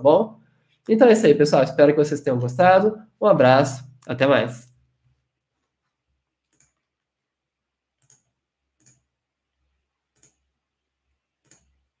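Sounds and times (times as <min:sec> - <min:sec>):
computer mouse clicks: 0:06.4 - 0:07.1, 0:08.0 - 0:09.1, 0:10.1 - 0:10.5, 0:11.4 - 0:11.9.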